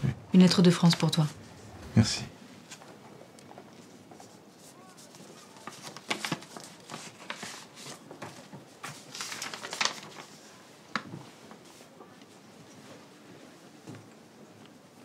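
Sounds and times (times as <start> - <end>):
paper crinkle: 3.7 - 11.9
paper rustling: 3.7 - 11.9.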